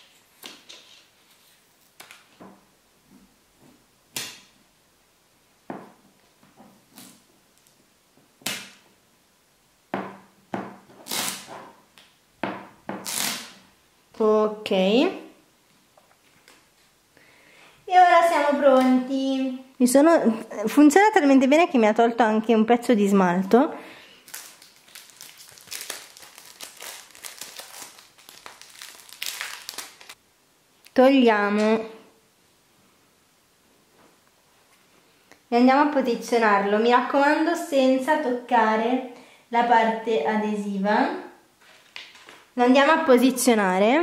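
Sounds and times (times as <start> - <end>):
plastic film crinkling: 24.2 - 30.2.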